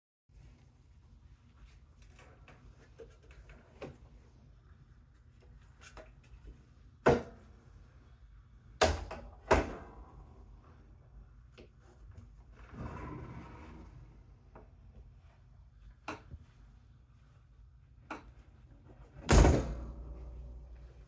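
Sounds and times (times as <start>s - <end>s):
ladder rubbing scrape: 12.6s - 14.2s.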